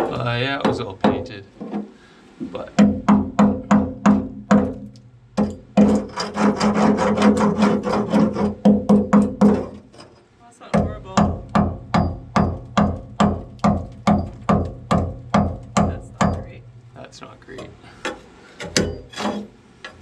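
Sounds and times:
hammer striking steel hull: 0:02.8 - 0:10.0, 0:10.7 - 0:19.5.

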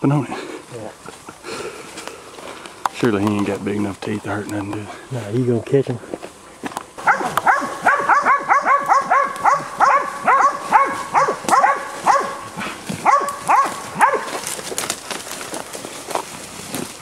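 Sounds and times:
dogs barking: 0:07.0 - 0:14.6.

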